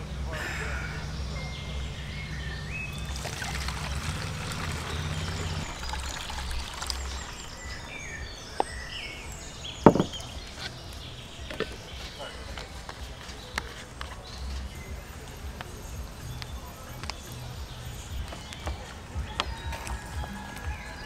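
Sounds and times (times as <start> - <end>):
liquid trickling through funnel: 2.9 - 8.3
sharp knock: 9.9 - 10.3.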